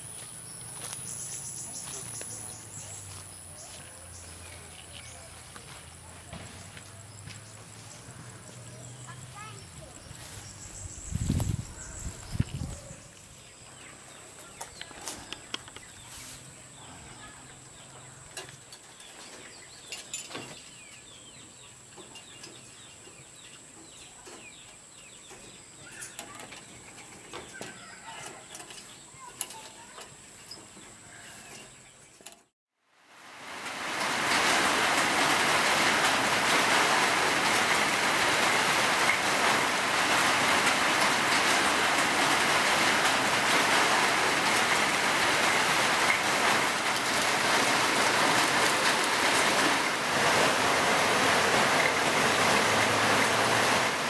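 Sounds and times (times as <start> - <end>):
heavy rain on concrete: 32.9 - 54.0.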